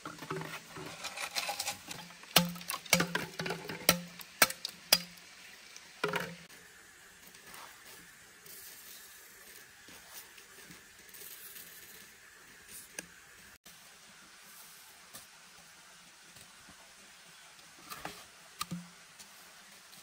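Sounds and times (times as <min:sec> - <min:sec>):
machete chopping bamboo: 0:02.3 - 0:03.2, 0:03.8 - 0:05.1.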